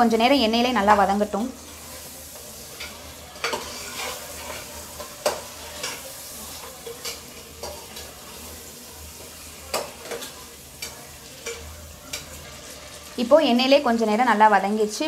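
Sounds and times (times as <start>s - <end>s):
chicken sizzling in oil: 0.0s - 15.0s
metal ladle scraping pot: 2.7s - 6.1s.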